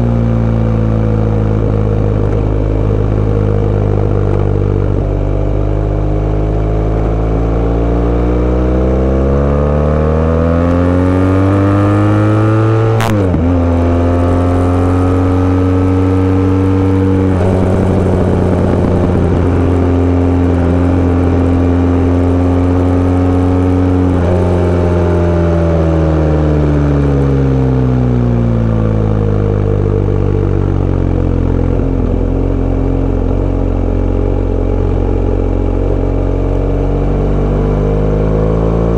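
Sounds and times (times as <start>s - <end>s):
motorbike engine revving: 1.2s - 29.7s.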